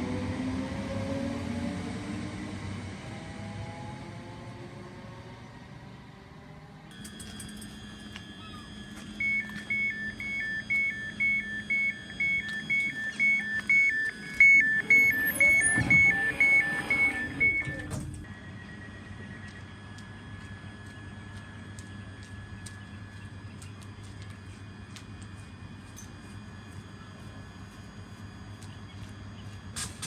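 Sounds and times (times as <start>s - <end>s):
low train hum: 0.0s - 30.0s
two-tone door warning beeping: 6.9s - 23.1s.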